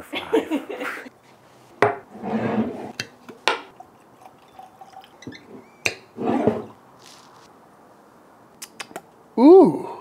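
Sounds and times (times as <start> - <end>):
liquid pouring into glass: 3.7 - 5.7
rustle: 6.9 - 7.5.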